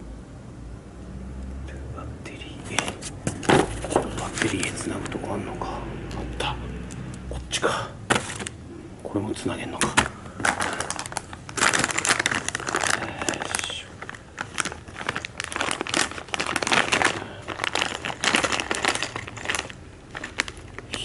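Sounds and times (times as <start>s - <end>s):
plastic bag crinkling: 2.7s - 5.2s, 9.8s - 21.0s.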